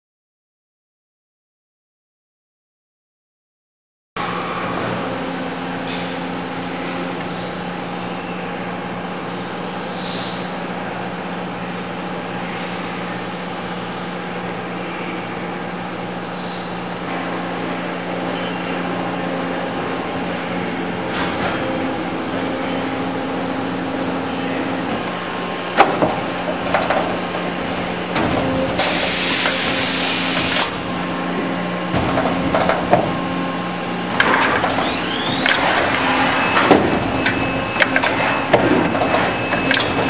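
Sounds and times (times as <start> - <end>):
shop machinery humming: 4.2 - 40.0
higher machine tone: 17.1 - 31.9, 34.8 - 40.0.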